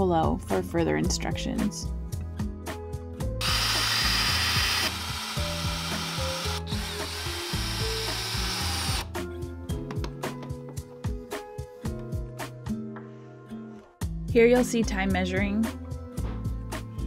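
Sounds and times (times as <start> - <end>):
background music: 0.0 - 17.0
cordless drill boring into wood: 3.4 - 9.1.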